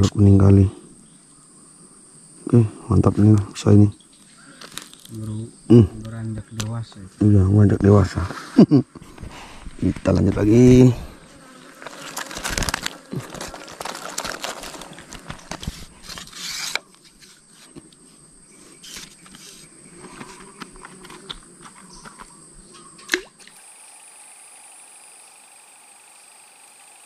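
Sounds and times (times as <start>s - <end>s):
rustling and clicking handling noise: 4.6s - 5.2s, 11.7s - 18.0s, 18.8s - 23.1s.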